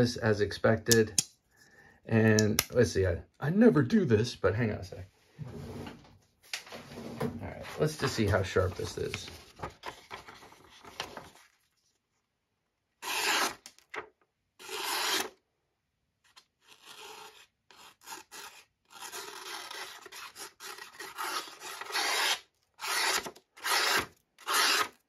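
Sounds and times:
knife slicing paper: 13.0 - 13.6, 16.3 - 25.0.

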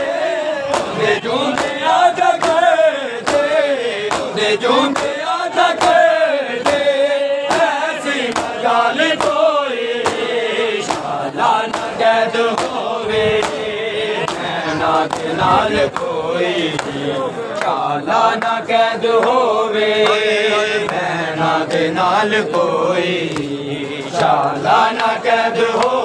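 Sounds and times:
men chanting together: 0.0 - 26.0
hands slapping chests: 0.7 - 6.0, 6.6 - 8.6, 9.2 - 9.4, 10.0 - 16.1, 23.3 - 24.4.

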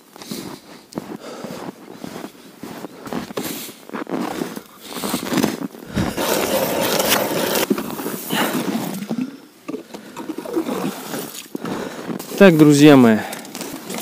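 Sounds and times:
boots crunching through snow: 0.0 - 8.9
ice auger scraping into ice: 5.0 - 9.1.

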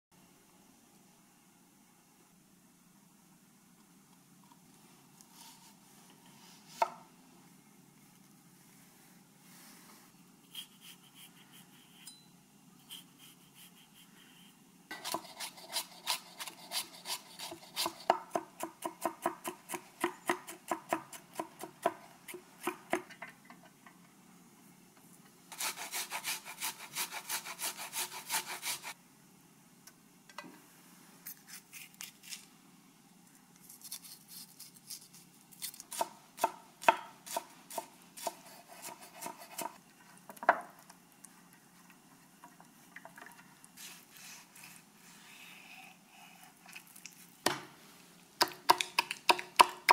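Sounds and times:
knife chopping on wooden board: 36.0 - 39.8.

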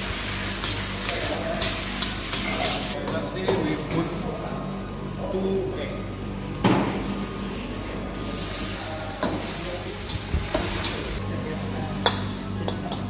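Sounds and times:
noodles sizzling in a wok: 0.0 - 3.2, 7.1 - 12.6.

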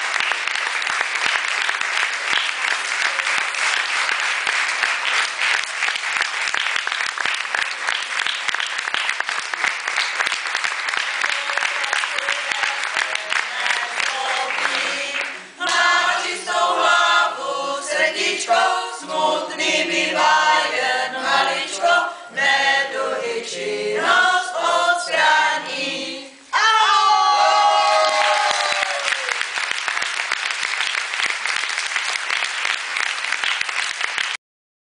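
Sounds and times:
applause: 0.0 - 16.0, 27.5 - 34.4
group singing unaccompanied: 12.4 - 27.6.

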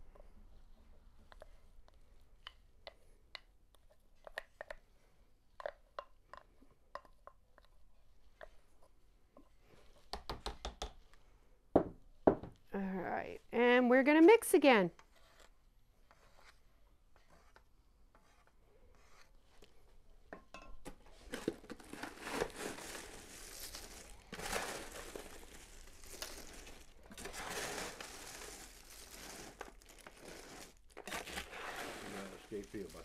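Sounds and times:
dry snacks rustling and crunching: 21.6 - 33.0.

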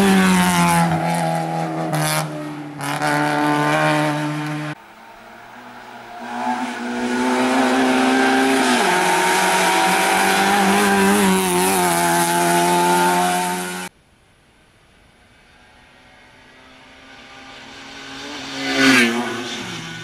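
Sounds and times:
race car engine revving through gears: 0.0 - 4.8, 5.7 - 13.9.

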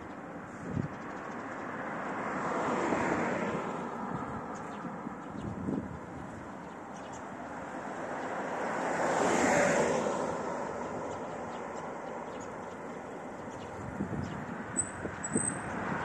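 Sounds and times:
street traffic: 0.0 - 16.0
vehicle passing by: 1.9 - 6.4, 7.5 - 12.1, 13.0 - 16.0.

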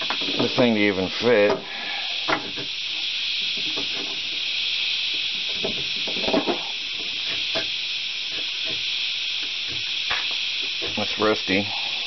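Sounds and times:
steady high hiss: 0.0 - 12.0.

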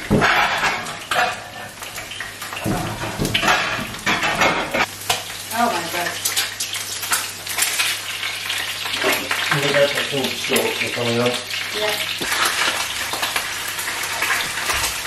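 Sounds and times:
spatula clattering against pans: 0.0 - 5.2
food sizzling in oil: 0.0 - 15.0.

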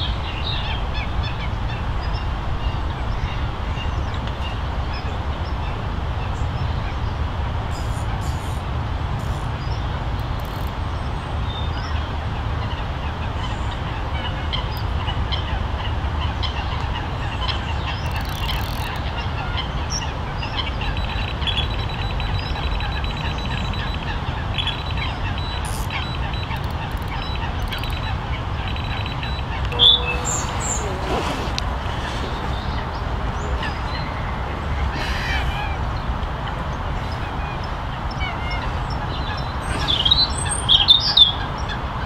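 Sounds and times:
geese honking: 28.7 - 35.5.

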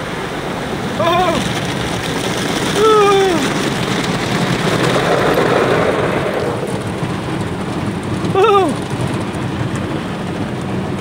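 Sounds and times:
car wash water jets spraying: 0.0 - 11.0
person exclaiming: 1.0 - 1.5, 2.8 - 3.6, 8.3 - 8.8.

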